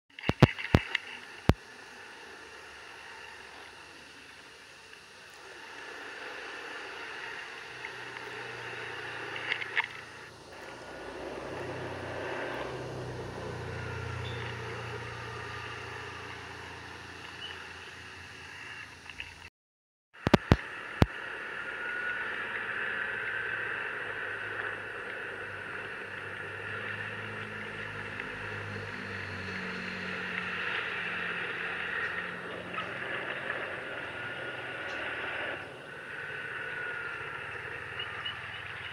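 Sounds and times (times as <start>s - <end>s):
road and wind noise: 0.1s - 19.5s, 20.2s - 38.9s
scooter engine humming: 7.7s - 19.1s, 21.6s - 38.9s.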